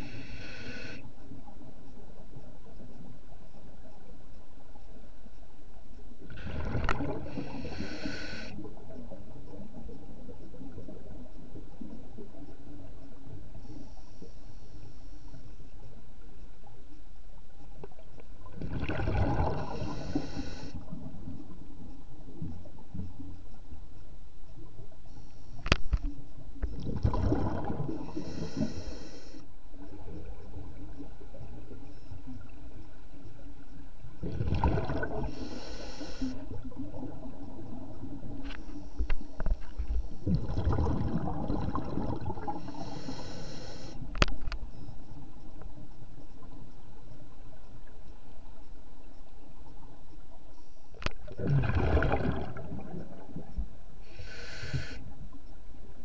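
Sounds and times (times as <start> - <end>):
diver breathing through regulator: 0.0 - 1.1, 6.4 - 8.6, 19.3 - 20.8, 28.0 - 29.4, 35.0 - 36.5, 42.4 - 44.0, 54.0 - 55.0
rush of exhaled bubbles: 6.3 - 7.9, 18.5 - 20.2, 26.7 - 28.2, 34.2 - 35.4, 40.1 - 42.8, 51.1 - 53.5.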